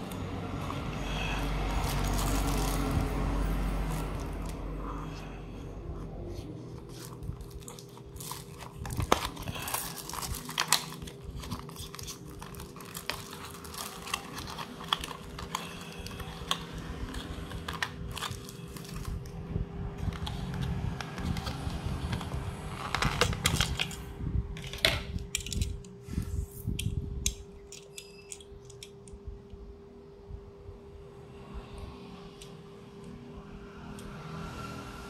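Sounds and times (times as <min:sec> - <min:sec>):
plastic packaging crinkling and tearing: 0:00.0 - 0:04.8, 0:06.6 - 0:25.7.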